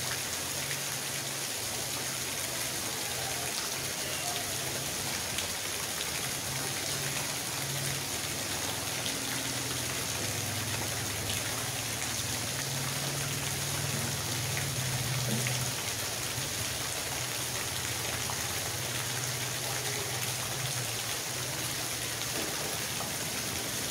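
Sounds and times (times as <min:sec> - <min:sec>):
rain on wet pavement: 0:00.0 - 0:23.9
water pouring into puddle: 0:00.0 - 0:23.9.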